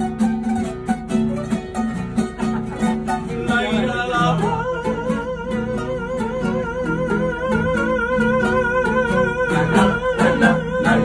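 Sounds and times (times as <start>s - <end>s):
acoustic guitars strumming: 0.0s - 11.0s.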